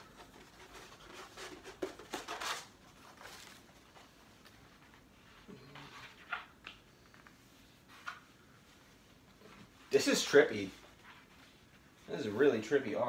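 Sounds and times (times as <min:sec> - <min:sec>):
stiff paper crinkling: 0:00.0 - 0:05.1.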